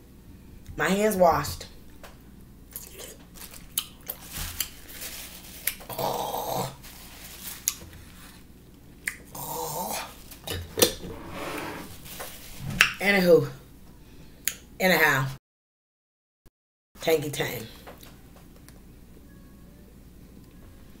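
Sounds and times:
pickle crunching and chewing: 2.7 - 4.8.

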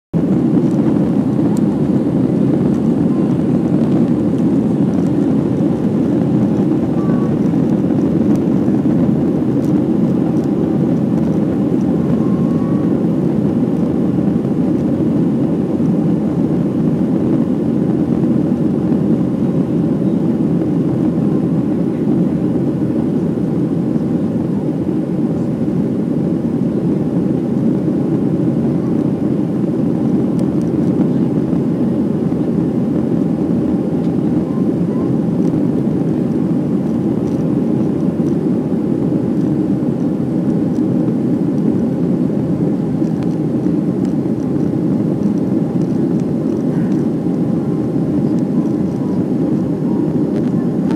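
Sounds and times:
jet airliner cabin engine rumble: 0.1 - 50.9.

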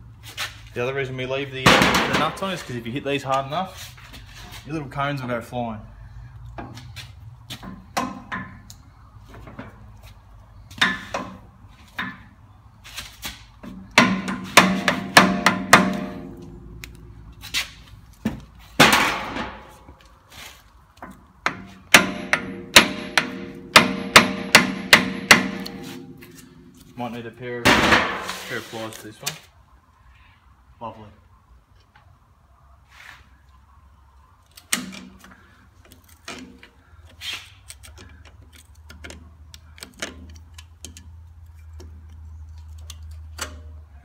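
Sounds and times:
hammer striking steel: 14.0 - 16.4, 21.5 - 26.3.

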